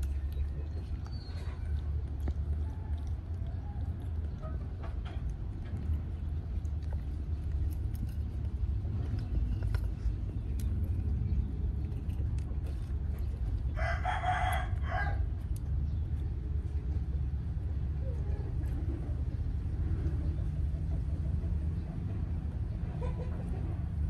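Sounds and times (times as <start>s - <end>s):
steady low rumble: 0.0s - 24.0s
rooster crowing: 13.8s - 15.3s.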